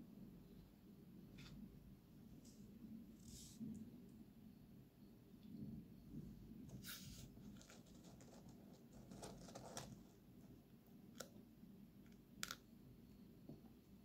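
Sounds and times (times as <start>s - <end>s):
turtle claws scratching plastic: 6.7s - 10.3s.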